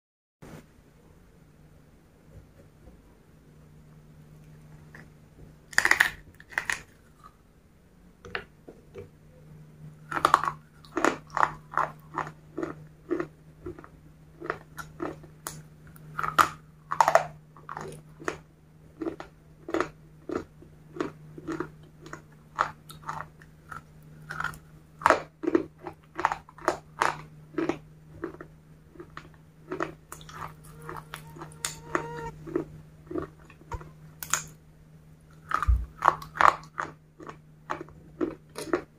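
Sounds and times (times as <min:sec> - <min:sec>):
steady low hum: 0:00.4 - 0:38.9
crunchy biting and chewing: 0:04.8 - 0:07.4, 0:10.0 - 0:34.6, 0:35.3 - 0:38.9.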